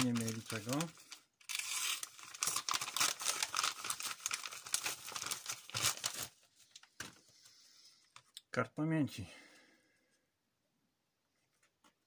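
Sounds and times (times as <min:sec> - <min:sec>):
packaging crinkling: 0:00.0 - 0:06.9.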